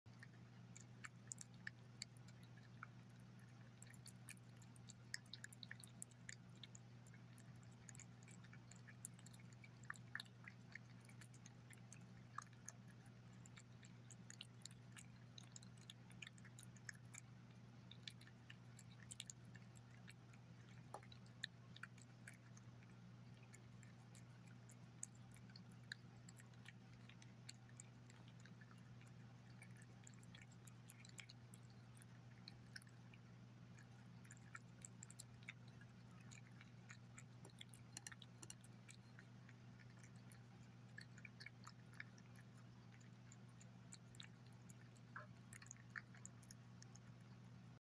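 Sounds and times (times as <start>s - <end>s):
cat chewing and licking: 0.1s - 47.8s.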